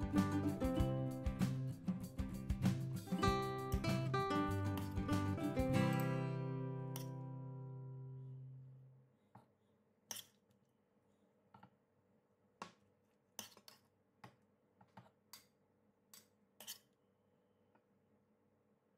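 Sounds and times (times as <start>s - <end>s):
strummed guitar music: 0.0s - 8.7s.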